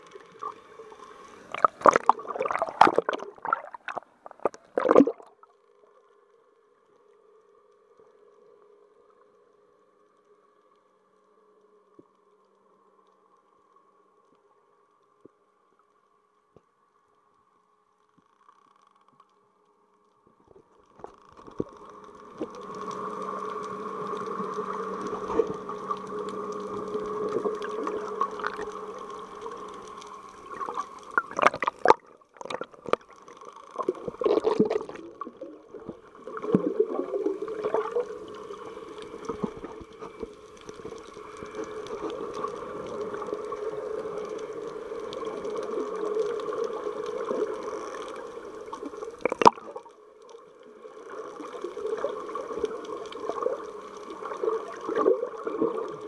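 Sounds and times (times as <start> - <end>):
churning water bursts: 0.4 - 5.4, 22.2 - 49.8
muffled underwater gurgling: 1.4 - 5.3, 21.5 - 49.8
steady hum: 21.1 - 56.0.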